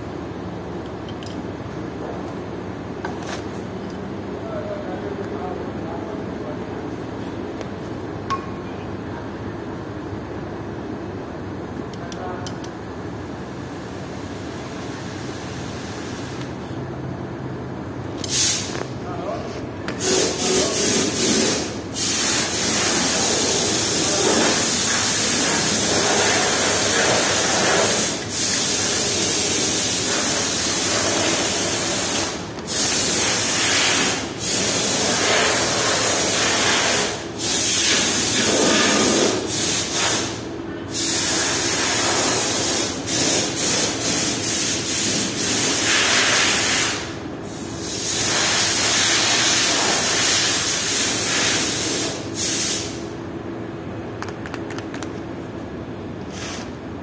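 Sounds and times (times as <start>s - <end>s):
loud steady hiss: 19.9s - 53.2s.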